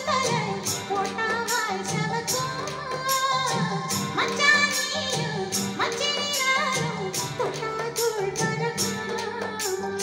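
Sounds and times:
song with singing and percussion: 0:00.0 - 0:10.0.

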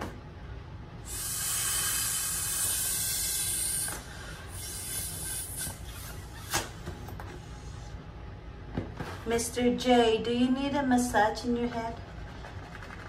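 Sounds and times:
air hissing from balloon neck: 0:01.0 - 0:08.0.

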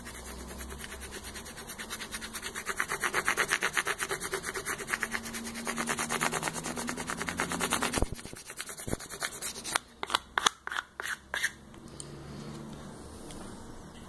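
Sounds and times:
spatula scraping on paper tape: 0:00.0 - 0:11.6.

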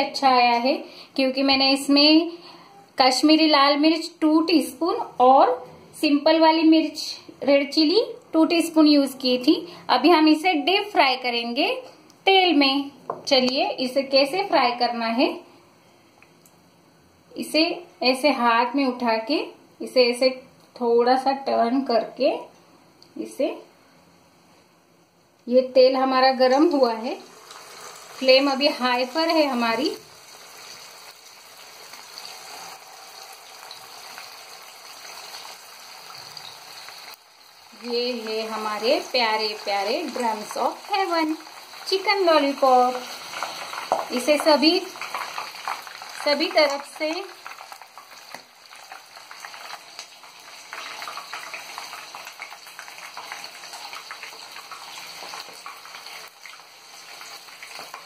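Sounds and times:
deep-frying sizzle and bubbling: 0:26.4 - 0:58.0
oil crackling and popping: 0:27.3 - 0:58.0.

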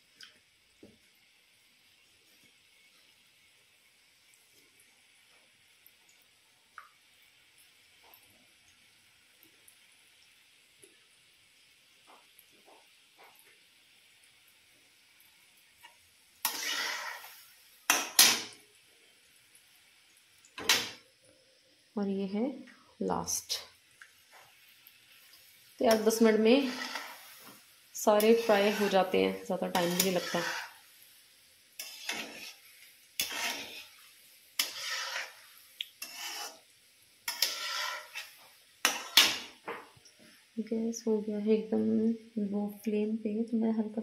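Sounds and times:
spoon scraping metal pan: 0:16.4 - 0:18.6, 0:25.8 - 0:30.8, 0:31.8 - 0:39.6.

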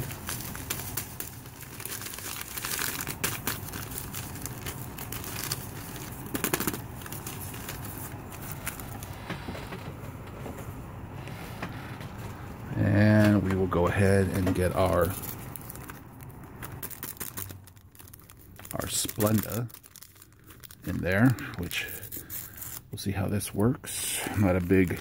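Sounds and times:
packet tearing open: 0:00.0 - 0:09.0, 0:14.8 - 0:22.9
plastic packaging crinkling: 0:00.0 - 0:10.6, 0:13.0 - 0:23.6, 0:24.2 - 0:25.0.

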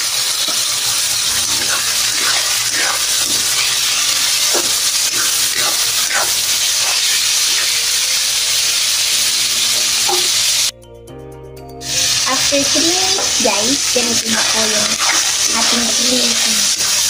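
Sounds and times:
food sizzling in hot oil: 0:00.0 - 0:10.7, 0:11.8 - 0:17.0
spatula scraping a wok: 0:00.3 - 0:08.6, 0:11.9 - 0:17.0.

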